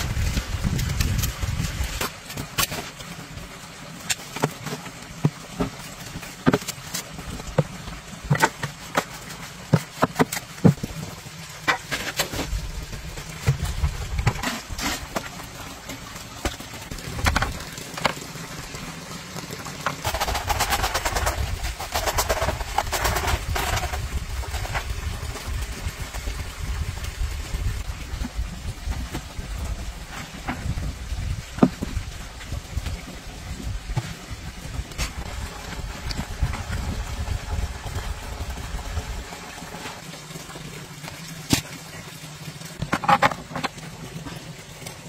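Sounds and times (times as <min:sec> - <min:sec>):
shovel scraping cement mix: 0:13.4 - 0:15.5, 0:20.0 - 0:25.0.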